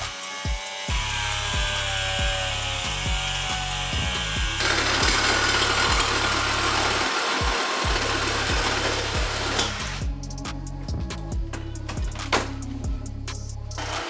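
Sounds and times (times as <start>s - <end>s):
grinder cutting plastic: 0.0s - 10.1s, 13.8s - 14.0s
bass beat of background music: 0.0s - 14.0s.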